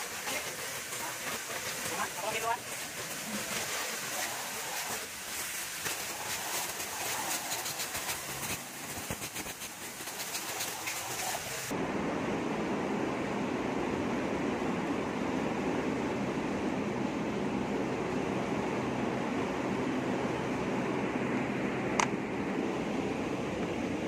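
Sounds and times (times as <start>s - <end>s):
low rushing water: 0.0s - 8.9s
water spray hissing on metal: 0.0s - 11.7s.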